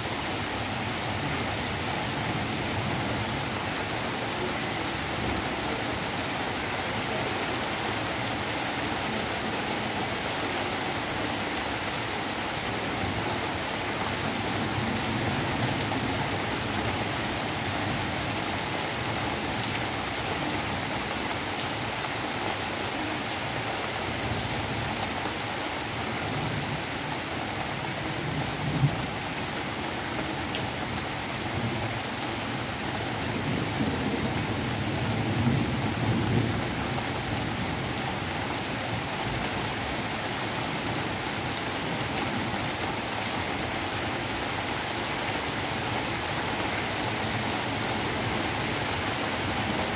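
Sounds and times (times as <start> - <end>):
rain falling on leaves: 0.0 - 49.9.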